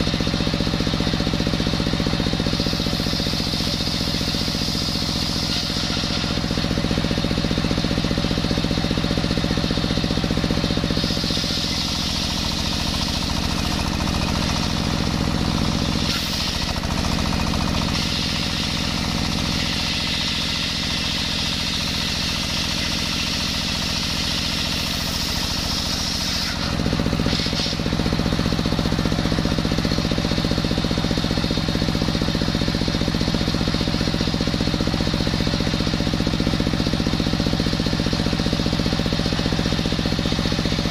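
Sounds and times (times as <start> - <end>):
diesel engine running: 0.0 - 40.9
circular saw ripping log: 2.7 - 6.9, 11.0 - 20.8, 24.3 - 27.9.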